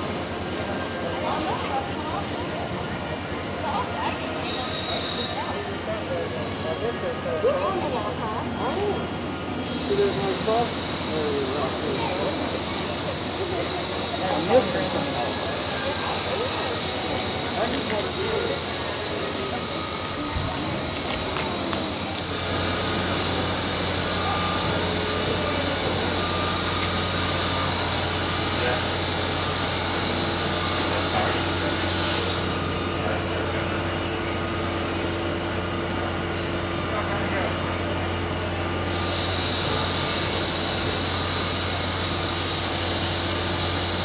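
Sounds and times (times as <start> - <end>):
high-pitched power tool whine: 4.4 - 5.7, 9.6 - 34.7, 38.8 - 44.0.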